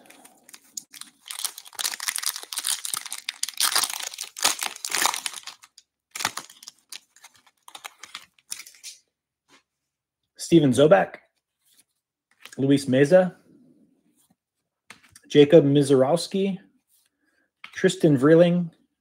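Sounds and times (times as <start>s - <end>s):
card pack wrapper crinkling and tearing: 0.0s - 9.0s.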